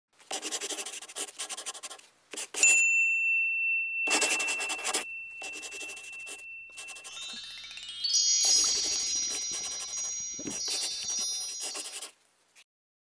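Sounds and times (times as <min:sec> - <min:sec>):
pen scratching on paper: 0:00.2 - 0:02.7, 0:04.1 - 0:07.2, 0:08.6 - 0:12.1
high bell ding: 0:02.6 - 0:12.1.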